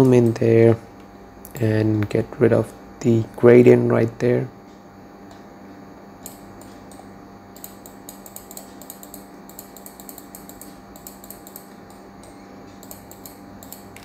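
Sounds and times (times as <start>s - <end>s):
low electrical hum: 0.0s - 14.0s
computer mouse clicking: 7.6s - 14.0s.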